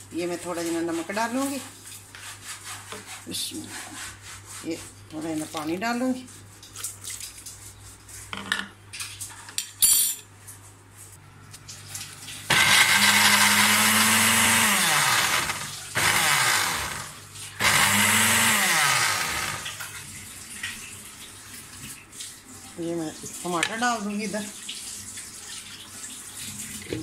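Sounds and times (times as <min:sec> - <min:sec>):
blender motor whine: 0:12.5 - 0:19.9.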